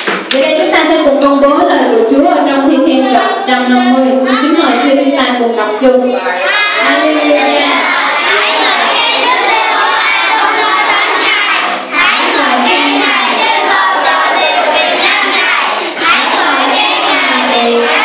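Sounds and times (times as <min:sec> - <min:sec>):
children and adults singing: 0:06.2 - 0:18.0.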